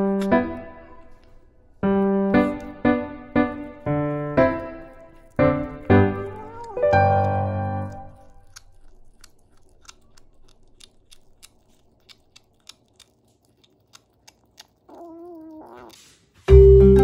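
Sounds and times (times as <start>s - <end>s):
kitten chewing crunchily: 0.0s - 16.4s
kitten wavering cry: 3.7s - 8.1s, 14.9s - 16.0s.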